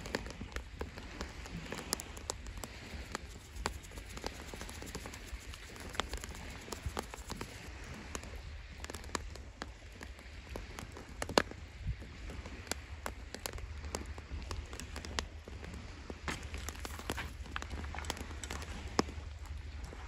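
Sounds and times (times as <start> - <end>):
firewood crackling and popping: 0.0 - 20.0.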